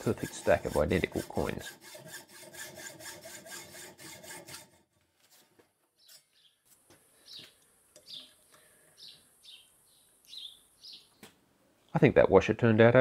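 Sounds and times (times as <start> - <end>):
bird chirping: 6.0 - 11.4.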